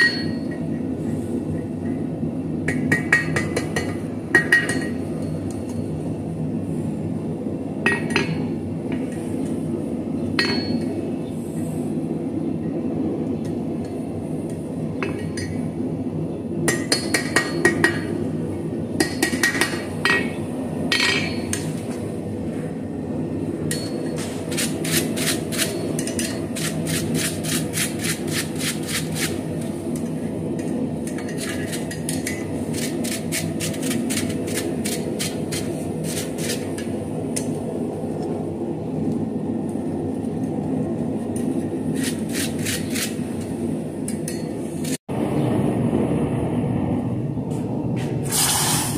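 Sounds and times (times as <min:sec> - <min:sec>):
hammer striking steel on anvil: 0:00.0 - 0:00.8, 0:02.7 - 0:05.7, 0:07.8 - 0:08.4, 0:10.4 - 0:10.9, 0:16.7 - 0:18.2, 0:19.0 - 0:21.7, 0:23.7 - 0:24.4
steady background hum: 0:00.0 - 0:48.9.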